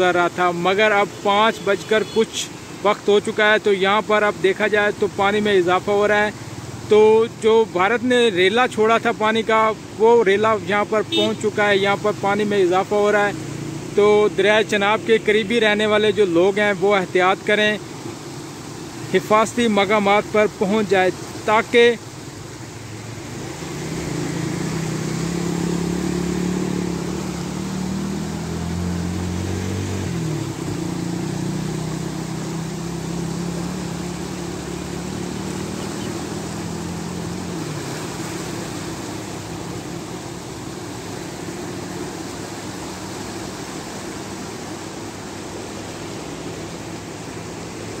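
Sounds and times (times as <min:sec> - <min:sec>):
engine droning: 0:00.0 - 0:48.0
river water rushing: 0:00.0 - 0:48.0.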